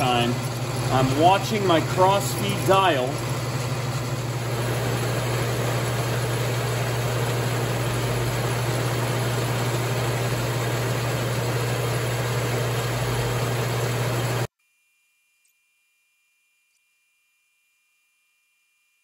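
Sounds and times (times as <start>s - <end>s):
lathe machine hum: 0.0s - 14.5s.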